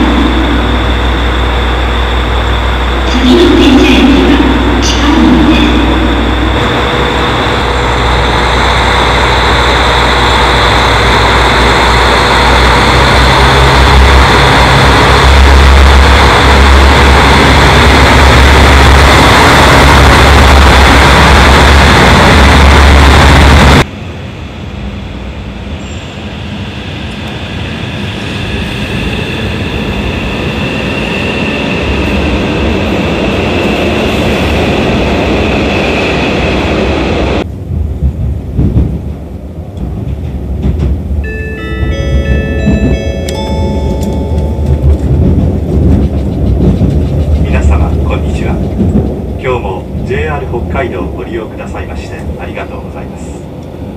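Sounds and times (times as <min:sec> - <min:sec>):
train rumble: 0:00.0 - 0:53.9.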